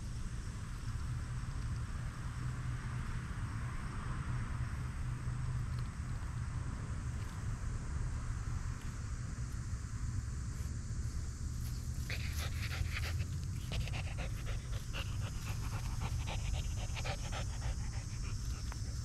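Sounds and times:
dog panting: 12.0s - 19.0s.

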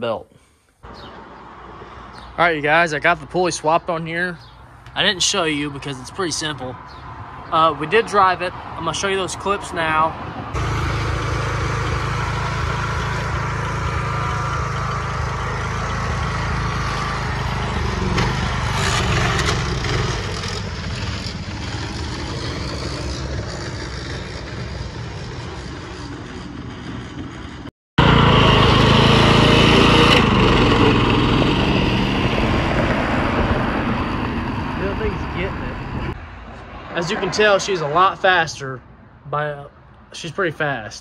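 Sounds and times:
riding lawn mower engine running: 10.5s - 36.2s.

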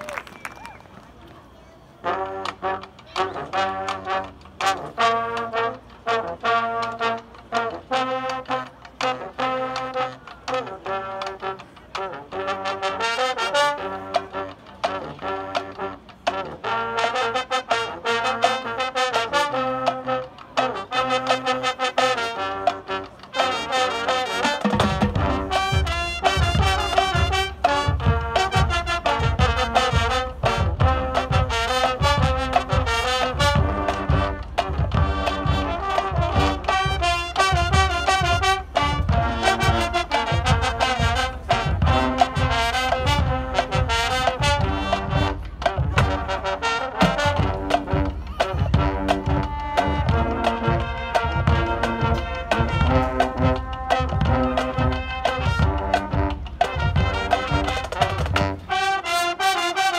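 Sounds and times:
brass horns: 2.0s - 59.9s
marching drums: 2.0s - 59.9s.

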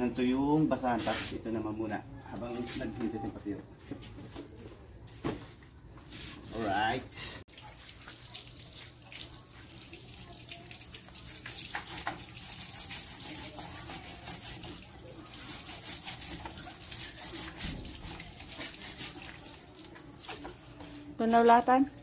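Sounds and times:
hose water splashing on concrete: 7.5s - 22.0s.

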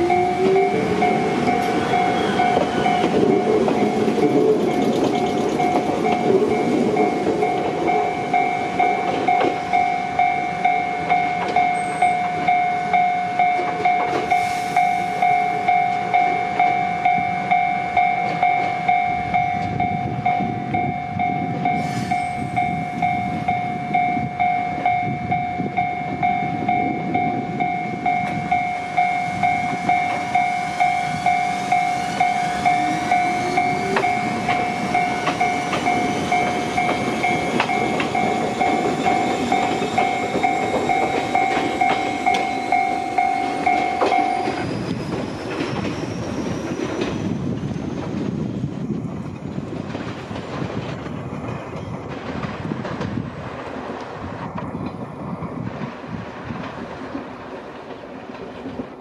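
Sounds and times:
train motor whine: 0.0s - 19.0s, 25.8s - 49.5s
warning bell ringing: 0.0s - 46.6s
trains running over rails: 0.0s - 59.0s.

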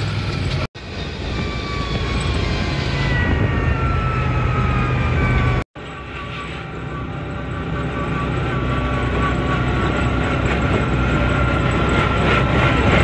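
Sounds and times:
buggy engine running: 0.0s - 2.6s, 5.8s - 13.0s
wind and road noise: 0.0s - 13.0s.

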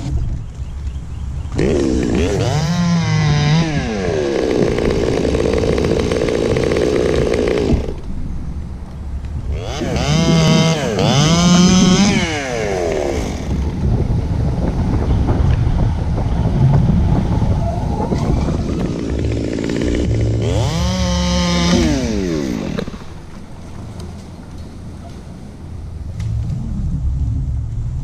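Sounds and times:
chainsaw revving and idling: 1.5s - 8.0s, 9.5s - 13.8s, 18.6s - 23.2s.

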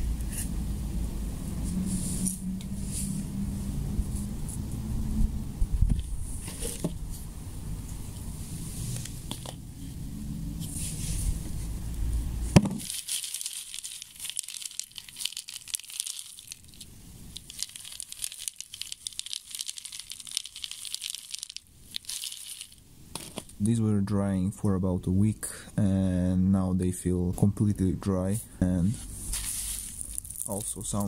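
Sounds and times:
low rumble: 0.0s - 12.6s
dry rice puffs rattling in bucket: 12.6s - 23.6s, 29.3s - 31.0s.

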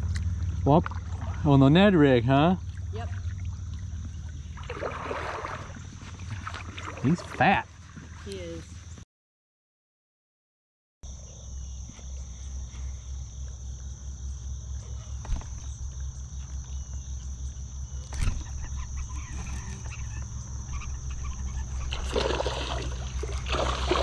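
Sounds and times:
insect chorus: 0.0s - 9.0s, 11.0s - 24.0s
fish splashing at surface: 2.7s - 7.4s, 21.9s - 24.0s.

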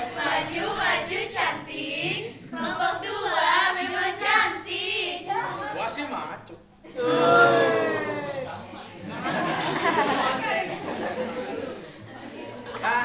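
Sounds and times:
group of people singing: 0.0s - 5.8s.

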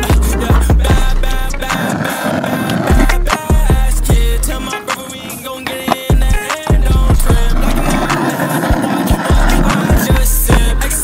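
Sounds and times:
hip-hop music with deep bass: 0.0s - 11.0s
skateboard wheels rolling on asphalt: 0.0s - 11.0s.

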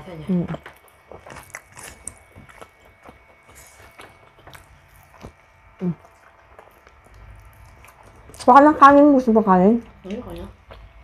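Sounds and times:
wet chewing and lip smacks: 0.5s - 8.5s.

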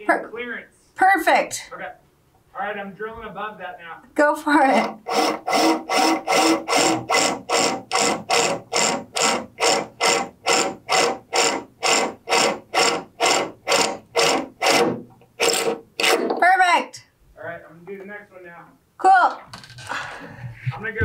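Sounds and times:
drill rasping through sheet metal: 4.7s - 16.4s.

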